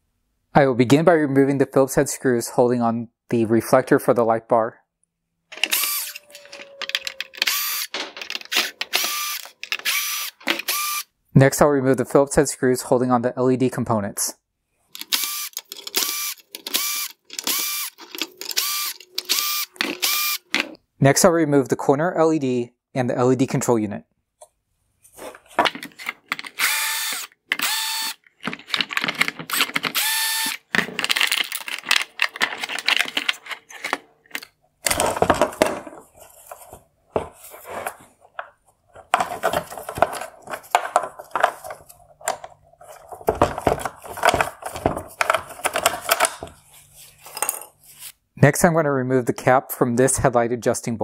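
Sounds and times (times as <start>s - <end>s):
plastic clicks rattles and scrapes: 5.5s - 10.8s, 14.9s - 20.8s, 25.2s - 46.6s
power drill whining: 5.5s - 11.1s, 15.0s - 20.5s, 26.6s - 28.2s, 29.5s - 30.7s.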